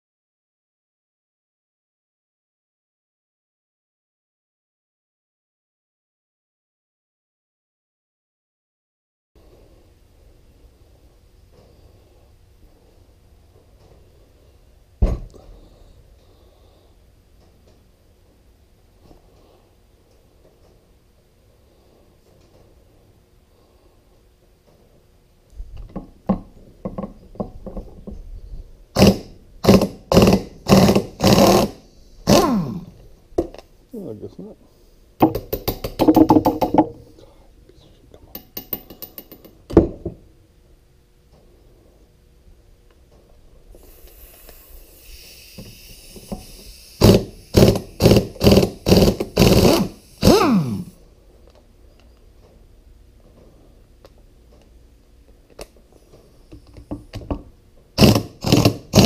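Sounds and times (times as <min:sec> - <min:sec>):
air hissing: 0:29.0 - 0:33.0, 0:43.7 - 0:51.0
impact wrench hammering: 0:29.0 - 0:33.5, 0:35.2 - 0:37.0, 0:38.4 - 0:40.0, 0:47.0 - 0:50.9, 0:58.0 - 0:59.0.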